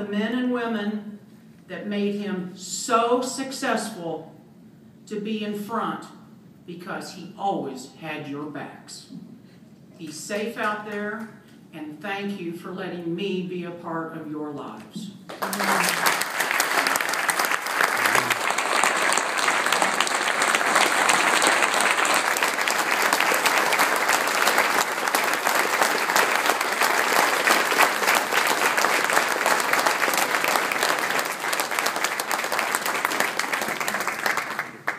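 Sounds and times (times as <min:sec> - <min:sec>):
audience applauding: 0:15.3 - 0:34.9.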